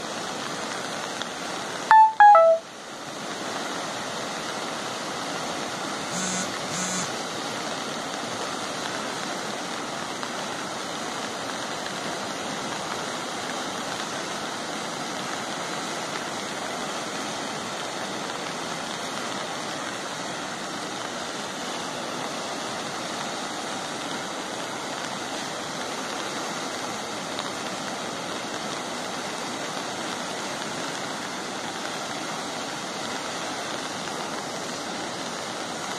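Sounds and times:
stream rushing: 0:00.0 - 0:35.9
short beeps: 0:01.9 - 0:02.6, 0:06.1 - 0:07.1.

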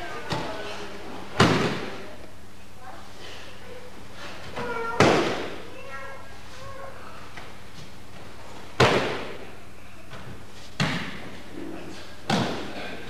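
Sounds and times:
body slapping onto mat: 0:08.8 - 0:09.4, 0:10.2 - 0:11.4.

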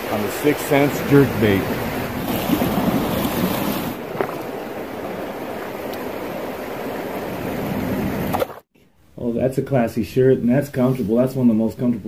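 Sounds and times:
river water rushing and sloshing: 0:00.0 - 0:08.7.

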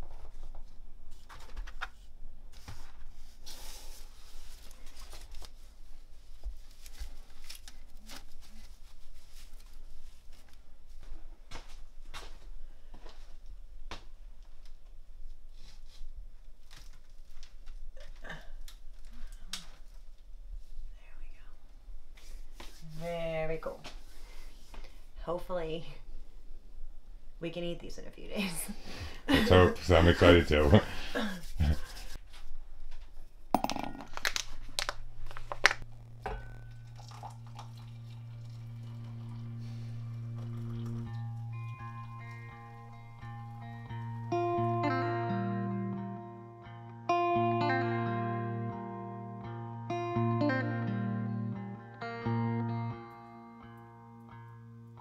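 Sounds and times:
steady low hum: 0:33.5 - 0:44.8
glass mugs clinking: 0:33.6 - 0:34.4, 0:36.2 - 0:39.4.

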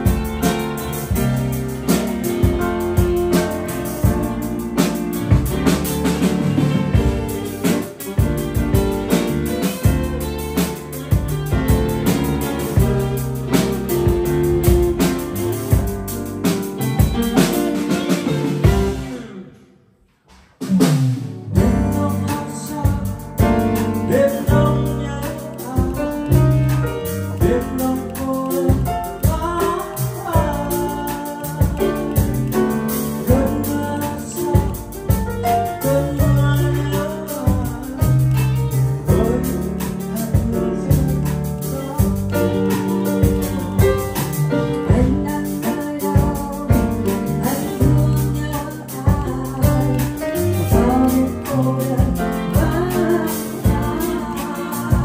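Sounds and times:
low bass line: 0:00.0 - 0:19.3, 0:21.5 - 0:55.0
electric guitar: 0:00.0 - 0:19.6, 0:21.6 - 0:55.0
piano: 0:00.0 - 0:20.0, 0:20.6 - 0:55.0
person singing: 0:21.5 - 0:55.0.

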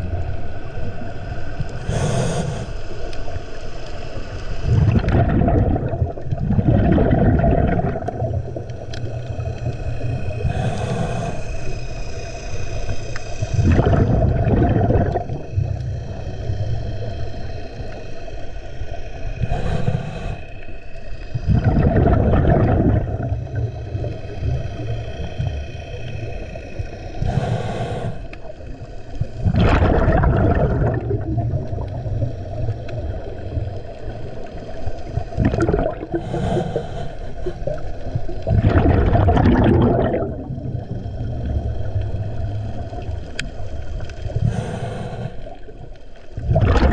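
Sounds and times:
steady hum with tones: 0:00.0 - 0:46.9
sharp inhalation hiss: 0:01.8 - 0:02.9, 0:10.4 - 0:13.4, 0:19.4 - 0:20.7, 0:27.2 - 0:28.5, 0:36.1 - 0:37.6, 0:44.4 - 0:45.6
bubbly underwater exhalations: 0:04.7 - 0:11.4, 0:13.5 - 0:16.6, 0:21.4 - 0:25.6, 0:29.3 - 0:33.5, 0:35.2 - 0:43.4, 0:46.4 - 0:46.9.

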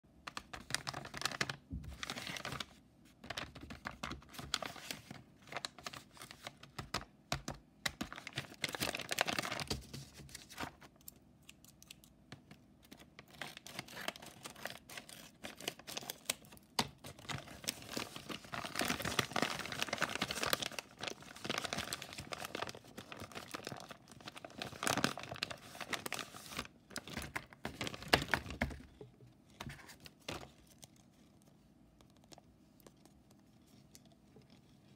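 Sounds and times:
paper bag crinkling and tearing: 0:00.5 - 0:06.5, 0:08.0 - 0:10.8, 0:12.9 - 0:28.8.

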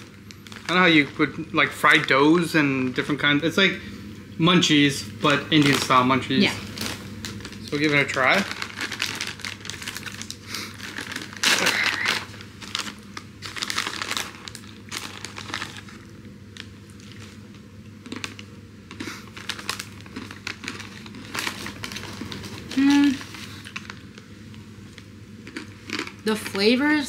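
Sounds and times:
plastic snack bag crinkling: 0:00.0 - 0:03.7, 0:04.7 - 0:27.0.

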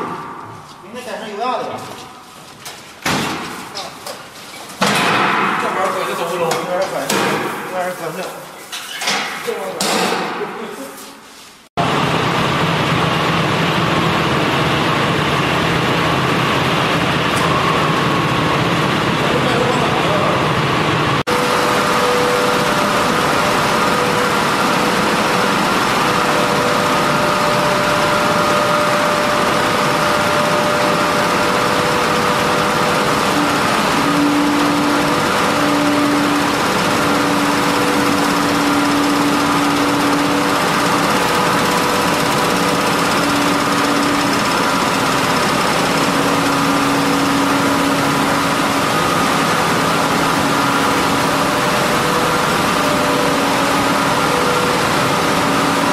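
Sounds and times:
loud steady machine noise: 0:04.8 - 0:08.3, 0:11.8 - 0:55.9.

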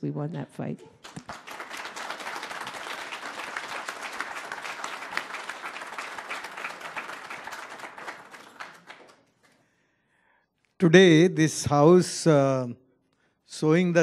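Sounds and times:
audience applauding: 0:01.0 - 0:09.6.

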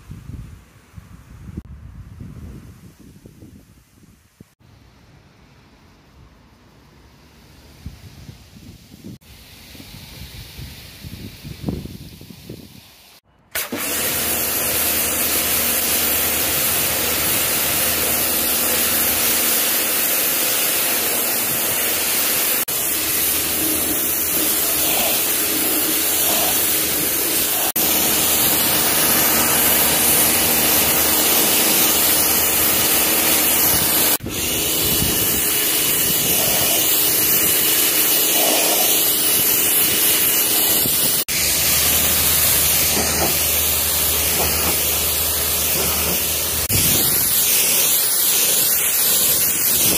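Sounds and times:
high-pressure water jet hissing: 0:09.0 - 0:49.9
machine hum: 0:25.4 - 0:34.2.

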